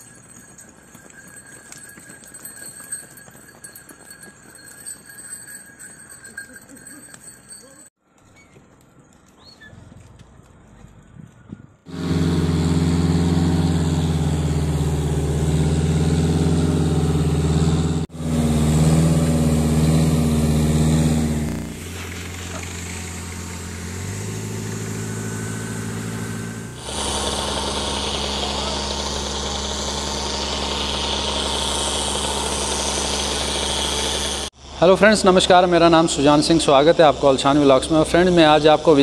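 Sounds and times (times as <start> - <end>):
vehicle engine droning: 8.9 - 39.0.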